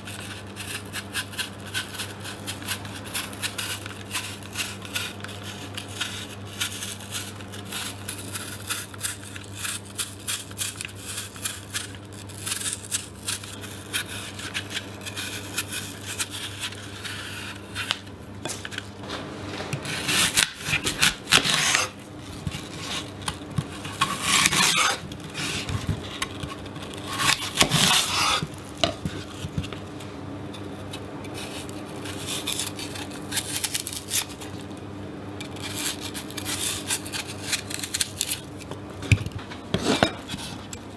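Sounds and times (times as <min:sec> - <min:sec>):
knife scraping apple peel: 0:00.0 - 0:19.0, 0:19.7 - 0:34.7, 0:35.4 - 0:38.7, 0:39.7 - 0:40.8
knife cutting onto wooden board: 0:19.8 - 0:22.0, 0:22.8 - 0:29.0.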